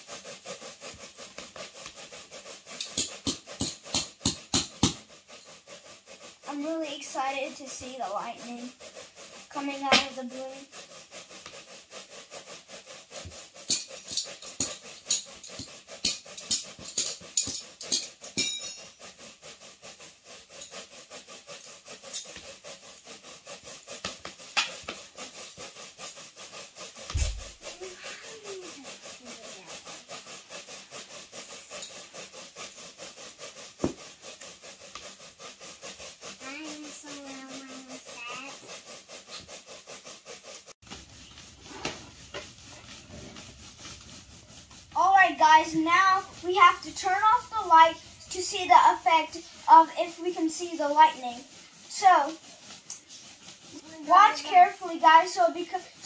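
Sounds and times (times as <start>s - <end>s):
balloon rubbing against hair: 0.0s - 56.0s
dull thump: 27.1s - 27.6s.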